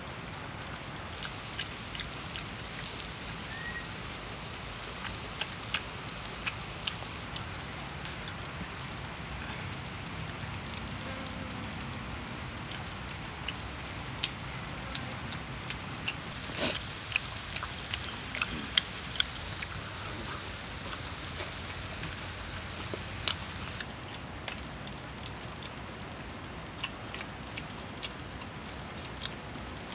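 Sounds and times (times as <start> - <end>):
food sizzling on hot stone: 1.2 - 7.2, 16.2 - 23.8
wood fire crackling: 1.2 - 9.3, 16.1 - 24.0.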